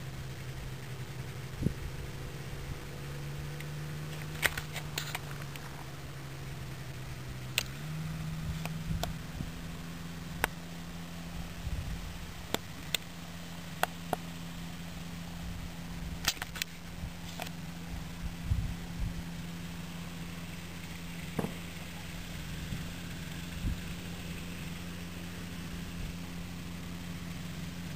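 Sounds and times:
distant engine humming: 0.0s - 27.9s.

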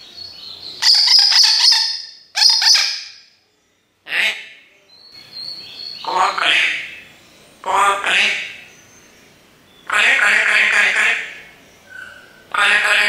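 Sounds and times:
parrot whistling and chirping: 0.3s - 3.2s, 11.8s - 12.5s.

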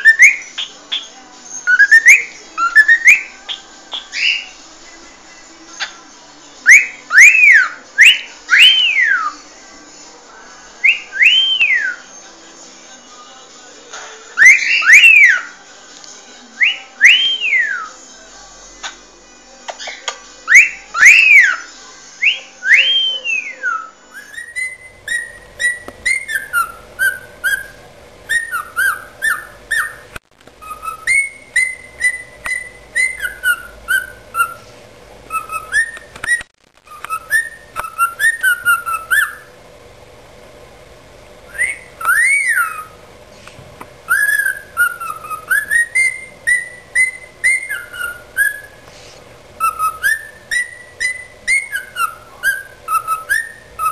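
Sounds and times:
cockatiel whistling: 0.0s - 4.5s, 6.7s - 9.4s, 10.8s - 12.1s, 14.4s - 15.5s, 16.6s - 18.0s, 19.7s - 39.6s, 41.5s - 43.1s, 44.0s - 53.9s.

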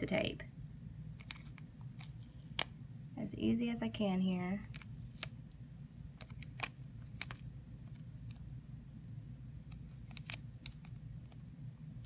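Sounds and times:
low steady hum: 0.0s - 12.0s
adhesive tape clicking and crackling: 1.2s - 2.7s, 4.6s - 5.4s, 6.2s - 8.6s, 9.6s - 11.4s.

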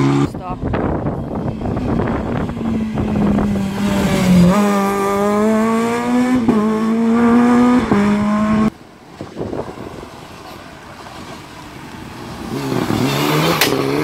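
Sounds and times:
rally car engine revving: 0.0s - 0.8s, 1.4s - 8.7s, 12.4s - 14.0s.

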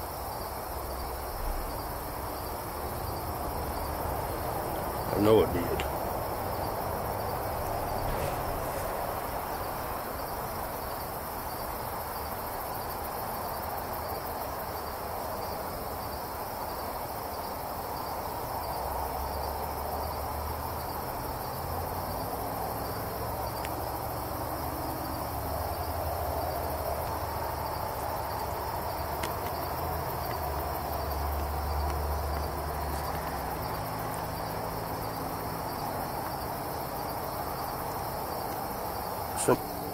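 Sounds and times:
insect chorus: 0.0s - 39.9s
faint hiss: 4.2s - 13.4s.

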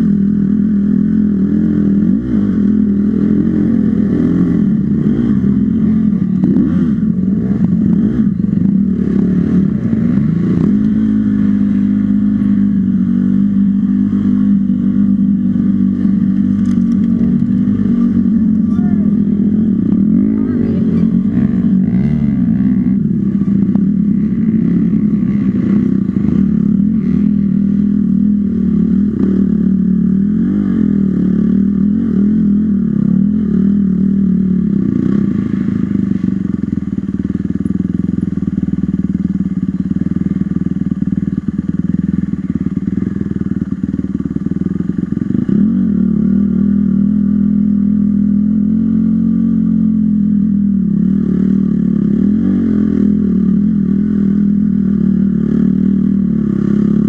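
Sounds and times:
dirt bike engine running: 0.0s - 57.0s.

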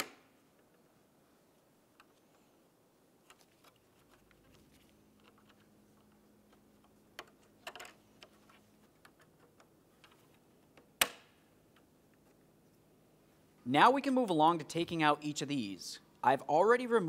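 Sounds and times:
sharp plastic snap: 0.0s - 0.3s, 10.9s - 11.4s.

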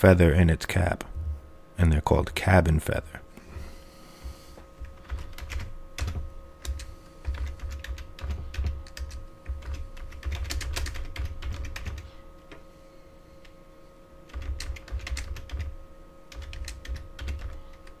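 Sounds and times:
faint steady hum: 0.0s - 18.0s
typing on keyboard: 5.0s - 12.1s, 14.3s - 15.7s, 16.3s - 18.0s.

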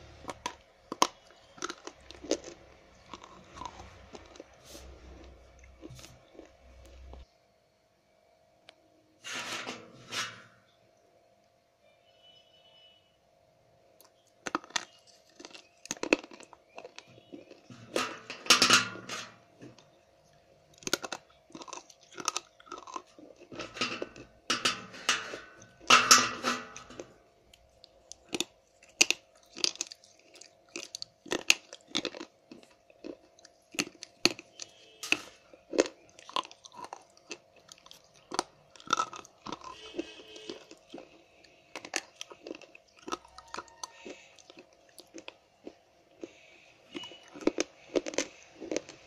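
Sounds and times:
slate pencil crunching: 27.9s - 45.3s.

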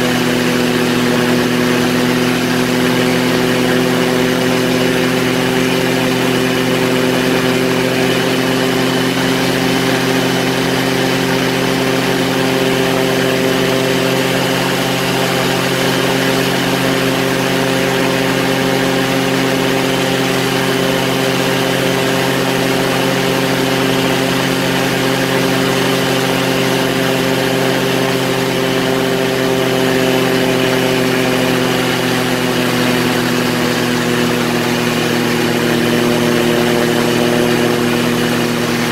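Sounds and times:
light aircraft engine droning: 0.0s - 38.9s.

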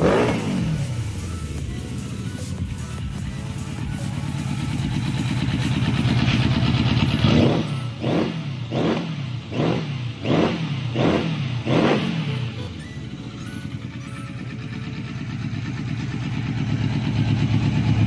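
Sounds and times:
motorcycle engine revving: 0.0s - 18.0s.

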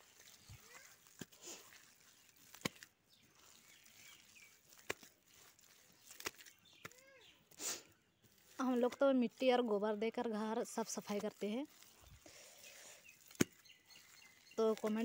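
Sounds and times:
squelching wet mud: 0.0s - 15.0s
sharp wet slaps: 0.2s - 7.1s, 13.1s - 15.0s.

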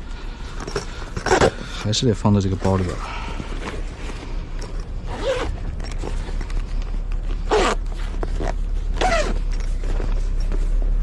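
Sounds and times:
zipper on fabric bag: 5.0s - 6.2s, 7.4s - 9.7s.

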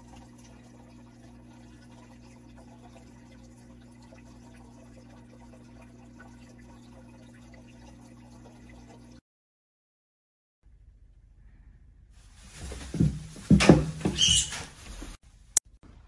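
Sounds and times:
water trickling and dripping: 0.0s - 9.2s.

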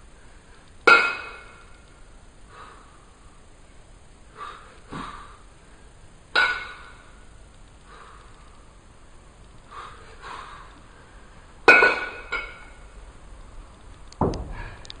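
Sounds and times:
soft breaths: 2.4s - 3.5s, 7.7s - 11.6s
metallic clank with ringing: 6.4s - 7.0s, 11.7s - 12.8s
small knock: 14.2s - 14.7s
heavy dull thump: 14.2s - 14.8s.

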